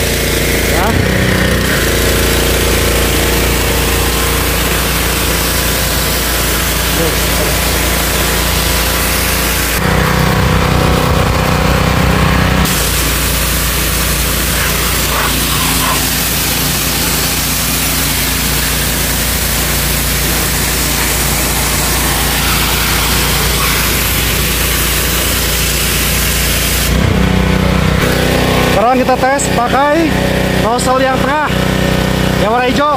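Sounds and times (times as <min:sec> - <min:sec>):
pressure washer engine running: 0:00.0 - 0:32.9
water spray hissing: 0:01.9 - 0:09.8, 0:12.6 - 0:27.0.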